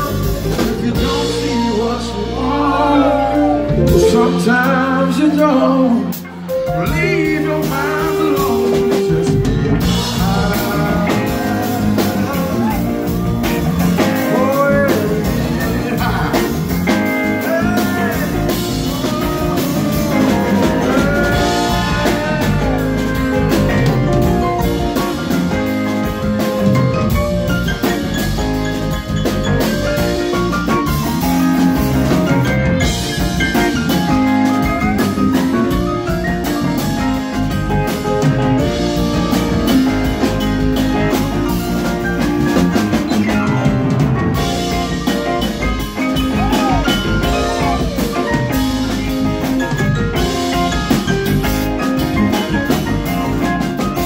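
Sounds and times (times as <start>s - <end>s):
man singing: 0.0s - 25.8s, 42.8s - 49.4s
drum kit: 0.0s - 54.0s
electric guitar: 0.0s - 54.0s
keyboards: 0.0s - 54.0s.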